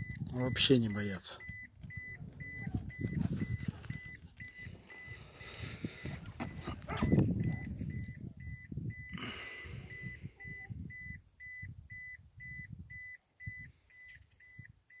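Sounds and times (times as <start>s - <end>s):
rapid electronic beeping: 0.0s - 9.1s.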